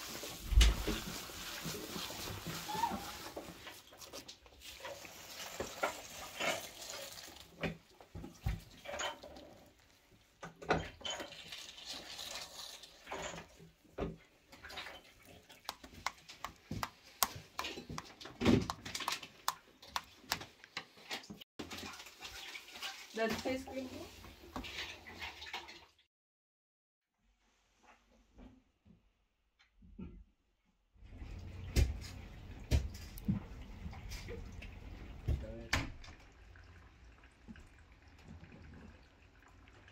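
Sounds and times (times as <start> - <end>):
hands squelching through filling: 0.0 - 10.5, 11.1 - 20.8.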